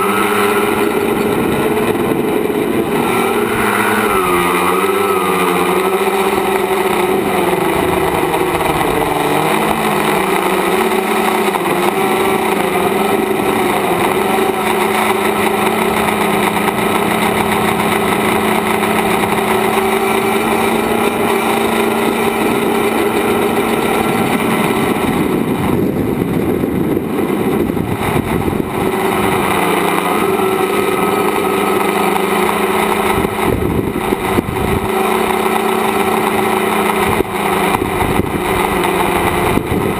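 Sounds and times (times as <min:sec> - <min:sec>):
electric motors and propellers droning: 0:00.0 - 0:39.9.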